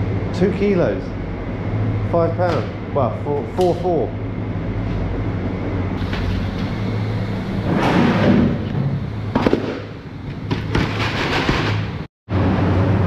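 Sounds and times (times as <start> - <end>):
low machine hum: 0.0 - 13.0
plastic crates clattering and scraping: 10.5 - 12.0.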